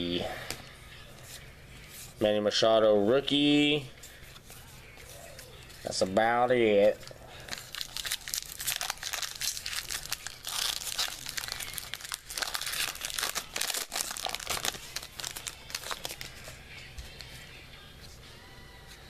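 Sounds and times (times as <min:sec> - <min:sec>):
foil wrapper tearing and crinkling: 0:07.4 - 0:16.5.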